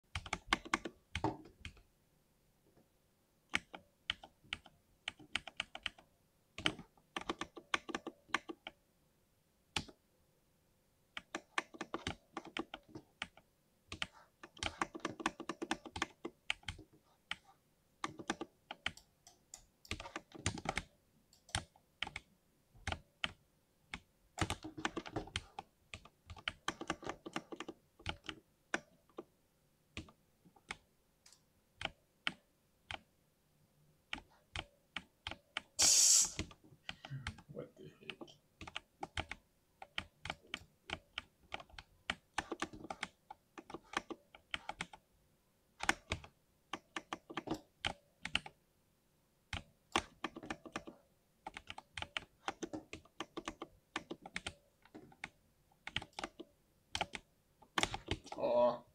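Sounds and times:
mechanical keyboard typing: 0:00.1 - 0:01.8, 0:03.5 - 0:08.8, 0:11.2 - 0:17.4, 0:18.0 - 0:29.3, 0:38.1 - 0:45.0, 0:45.8 - 0:48.6, 0:49.5 - 0:58.4.

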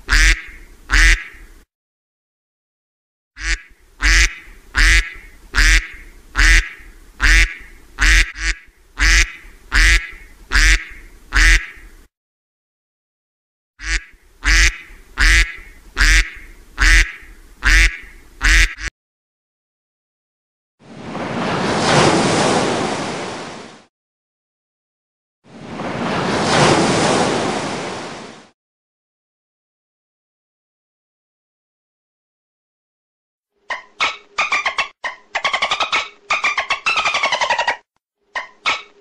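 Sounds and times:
ducks quacking: 0:00.0 - 0:01.4, 0:03.4 - 0:11.9, 0:13.8 - 0:18.9.

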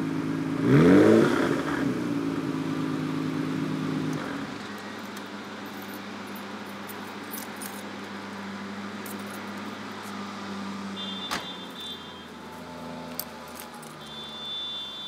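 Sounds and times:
car door shutting: 0:11.1 - 0:11.6.

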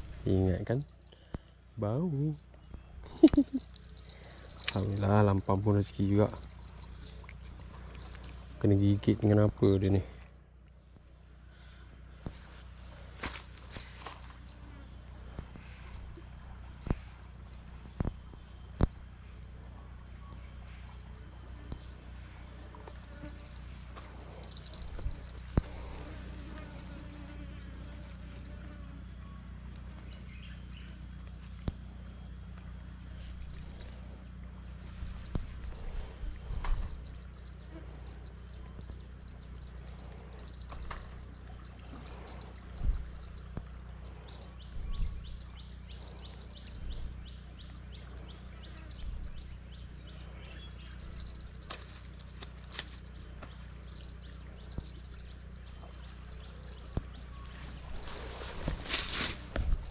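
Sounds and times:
fast pulsing insect chirp: 0:00.0 - 0:59.9
insects droning: 0:00.0 - 0:59.9
dull low thumps: 0:42.0 - 0:43.7, 0:44.7 - 0:46.0.

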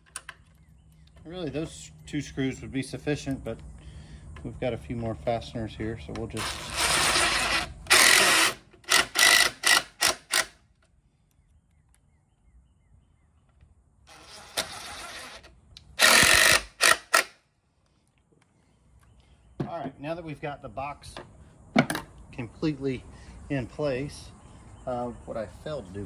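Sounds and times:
cordless driver driving screws: 0:06.4 - 0:10.6, 0:14.1 - 0:17.4.

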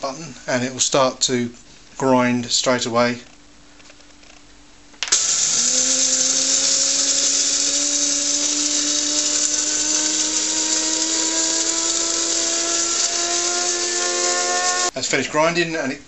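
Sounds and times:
coffee grinder whirring: 0:05.1 - 0:15.0.

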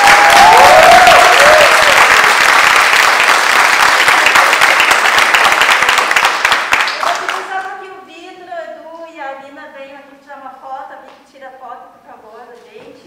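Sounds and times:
cheering whoops: 0:00.0 - 0:02.4
crowd applauding: 0:00.0 - 0:07.6.

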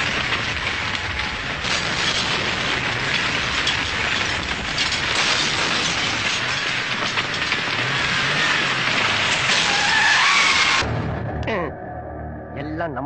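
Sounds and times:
explosions and flying debris: 0:00.0 - 0:11.3.

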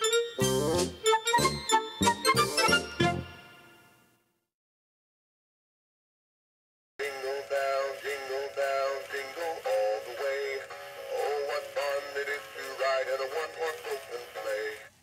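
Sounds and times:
electronic toy playing christmas song: 0:00.0 - 0:04.1, 0:07.0 - 0:14.9.

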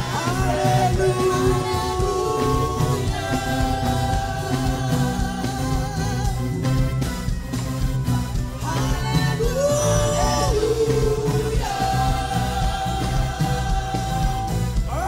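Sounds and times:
person singing: 0:00.0 - 0:06.8, 0:08.4 - 0:15.0
gospel band music: 0:00.0 - 0:15.0.

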